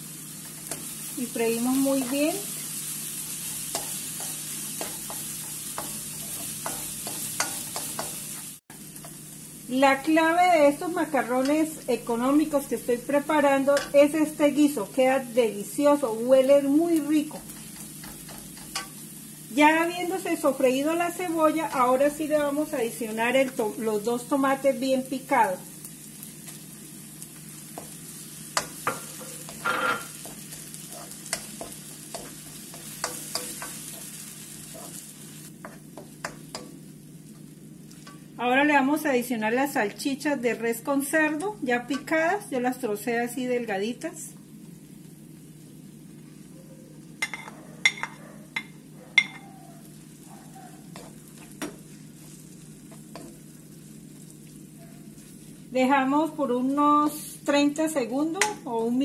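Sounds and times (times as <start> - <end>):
vegetables sizzling in a wok: 0.0 - 59.0
wooden spoon scraping a pan: 28.6 - 36.7.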